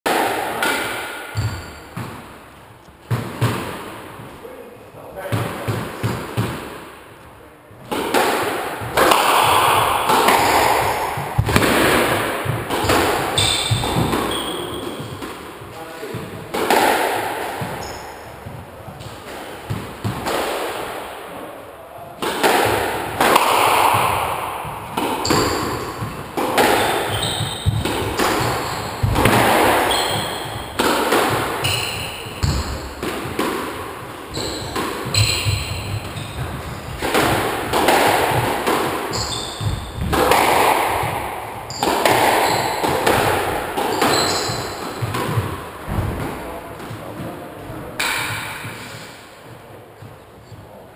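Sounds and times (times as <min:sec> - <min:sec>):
squash ball cracking off racket and walls: 0:00.1 - 0:04.3, 0:05.2 - 0:07.1, 0:07.8 - 0:50.2
shoes squeaking on wooden floor: 0:01.3 - 0:02.1, 0:10.3 - 0:16.4, 0:17.6 - 0:20.2, 0:24.7 - 0:33.4, 0:34.0 - 0:37.4, 0:38.3 - 0:48.0.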